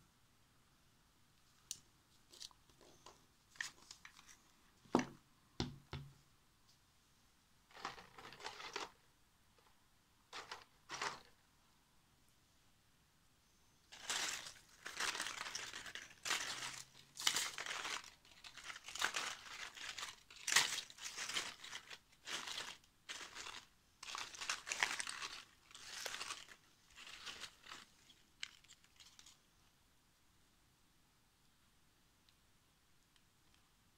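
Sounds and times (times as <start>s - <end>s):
dry husks crinkling and rustling: 13.9s - 29.5s.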